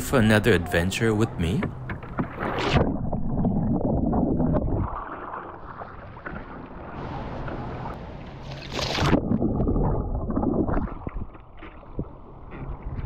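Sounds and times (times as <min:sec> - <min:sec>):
water splashing against kayak hull: 0:01.4 - 0:13.0
loud splash: 0:04.6 - 0:11.3.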